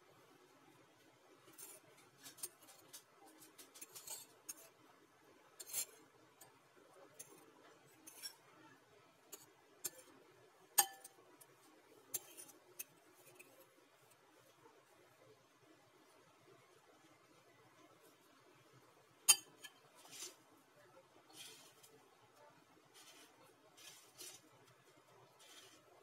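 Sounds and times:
fork clinking against ceramic bowl: 10.8 - 11.1, 19.3 - 19.8.

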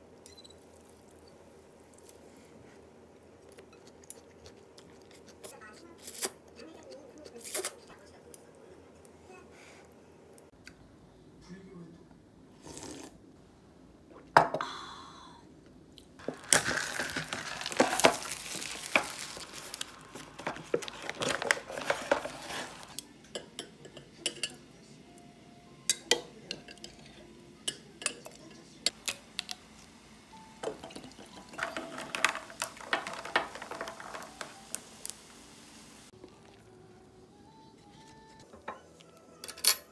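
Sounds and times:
dishes and cutlery clattering: 30.6 - 34.6
spoon stirring in a glass: 30.6 - 34.6.

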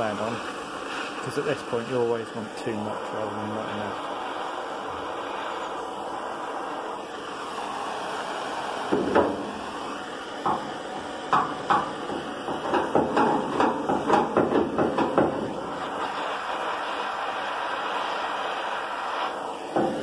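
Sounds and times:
blowtorch flame hissing: 0.0 - 20.0
wooden paddle knocking on metal: 11.3 - 15.4.

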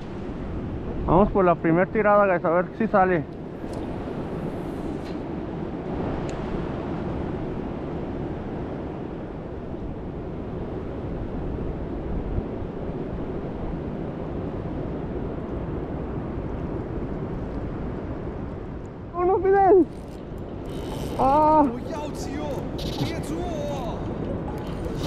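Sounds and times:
river water rushing: 19.9 - 25.0.

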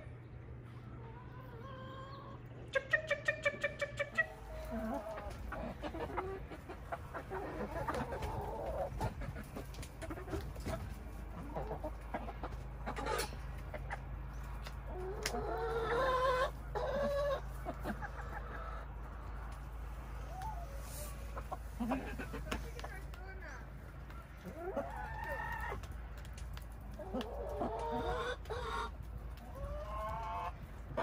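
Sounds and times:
steady low hum: 0.0 - 24.7
hens clucking: 0.0 - 31.0.

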